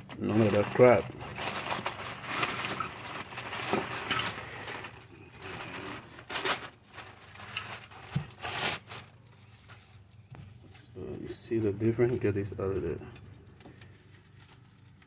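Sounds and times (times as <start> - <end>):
plastic bag crinkling: 0.0 - 10.1.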